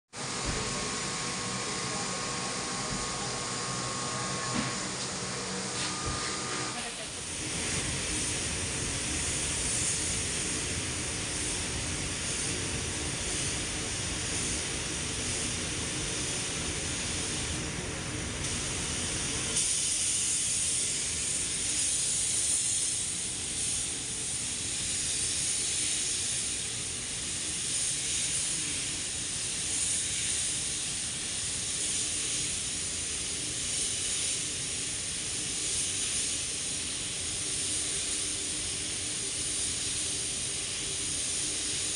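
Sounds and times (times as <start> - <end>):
spray gun air hiss: 0.2 - 41.9.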